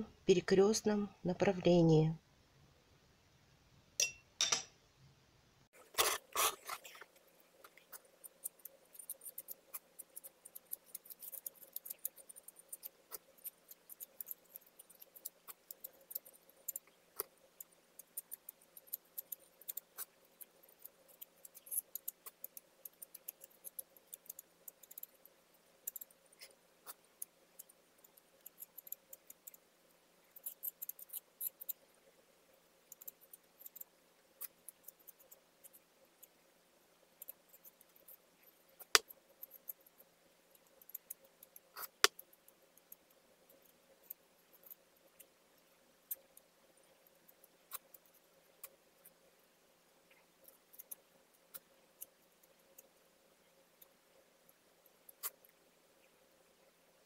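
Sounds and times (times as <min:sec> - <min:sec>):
palette knife scraping glass: 0:05.8 - 0:07.0.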